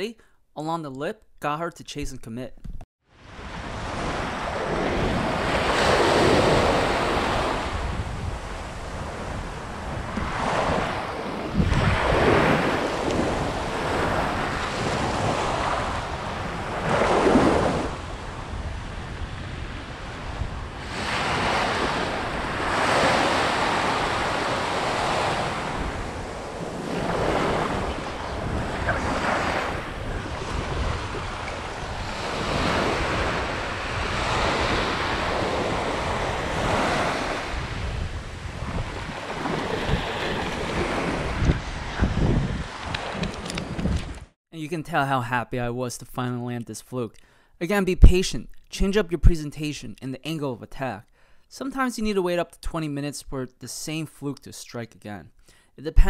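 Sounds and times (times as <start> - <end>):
small waves breaking on sand: 3.1 - 43.3
wind rumbling on microphone: 3.2 - 44.4.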